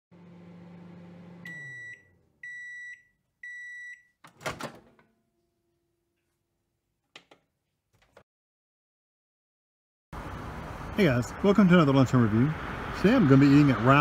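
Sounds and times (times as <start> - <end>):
microwave oven humming: 0.1 - 3.6.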